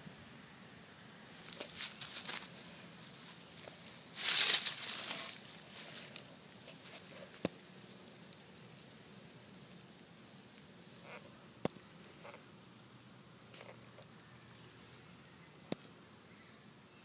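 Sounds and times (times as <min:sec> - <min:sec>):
soft rustles: 0:01.3 - 0:08.0.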